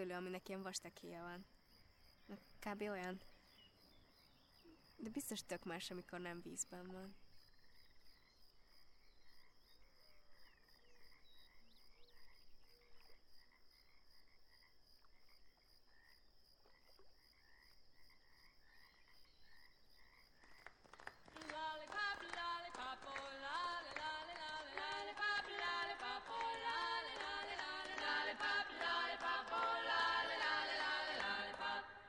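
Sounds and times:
frogs croaking: 0:00.0 - 0:32.0
a cappella vocal music: 0:21.3 - 0:32.0.

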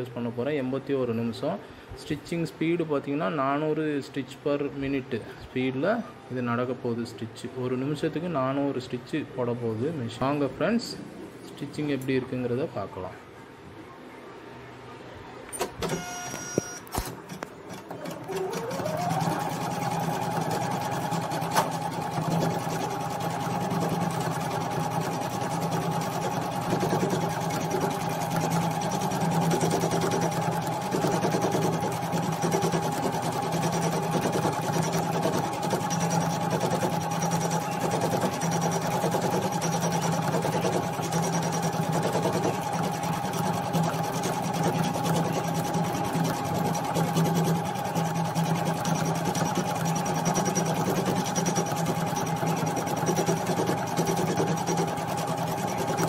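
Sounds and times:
embroidery machine motor whine: 0:18.4 - 0:56.0
needle chattering: 0:22.1 - 0:56.0.

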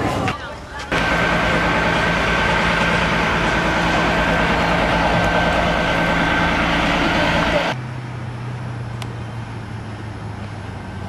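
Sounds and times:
high whine: 0:00.9 - 0:07.8
vehicle engine low drone: 0:00.9 - 0:11.0.

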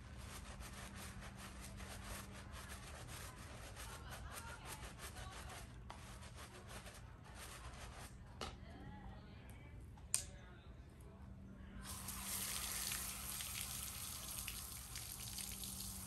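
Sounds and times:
water running and splashing: 0:11.9 - 0:16.0.

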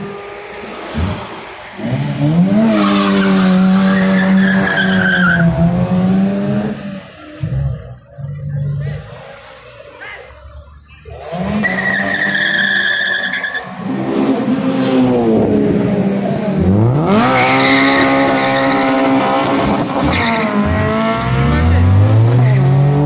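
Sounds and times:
car engines revving: 0:00.0 - 0:23.0
tyres squealing: 0:02.7 - 0:05.6.

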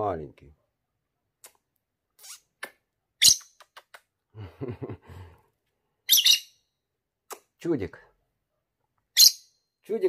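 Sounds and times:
bird shrill chirps: 0:03.2 - 0:03.6, 0:06.1 - 0:06.7, 0:09.1 - 0:09.6.

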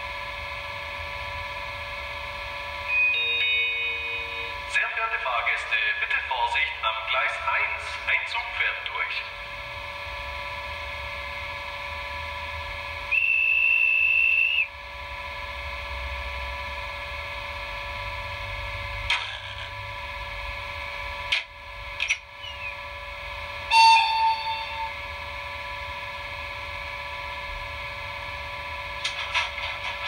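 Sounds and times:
electric locomotive hum: 0:00.0 - 0:30.0
high whistle: 0:02.9 - 0:04.5, 0:13.1 - 0:14.7, 0:23.7 - 0:25.0.

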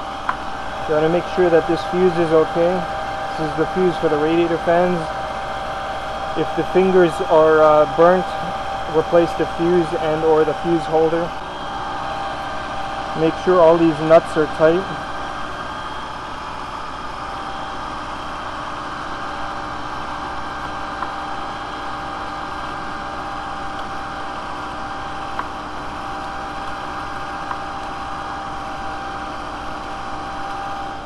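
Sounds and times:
car engine idling: 0:00.0 - 0:19.2.

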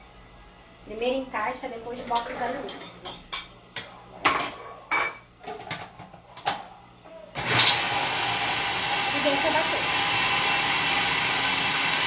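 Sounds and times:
food processor motor running: 0:07.4 - 0:12.0.

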